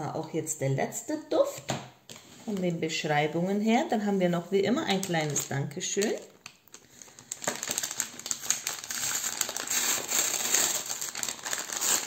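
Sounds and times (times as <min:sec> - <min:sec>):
paper bag crinkling: 0:04.9 - 0:12.0.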